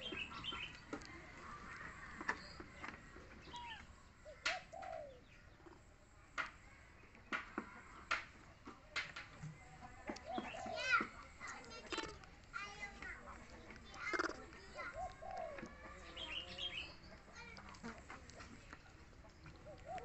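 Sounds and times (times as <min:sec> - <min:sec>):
faint animal calls: 0:14.0 - 0:16.9.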